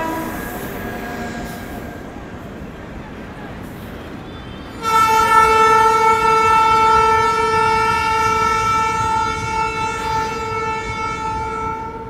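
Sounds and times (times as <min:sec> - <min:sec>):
train horn long blast: 0:00.0 - 0:02.2, 0:04.7 - 0:12.0
freight train rumbling past: 0:00.0 - 0:12.0.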